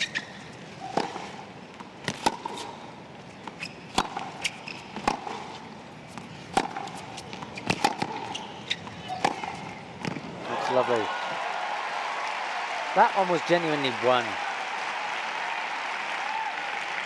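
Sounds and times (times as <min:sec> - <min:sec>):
racquet hitting tennis ball: 0:00.8 - 0:02.8, 0:03.5 - 0:10.4
tennis ball bouncing: 0:00.8 - 0:10.4.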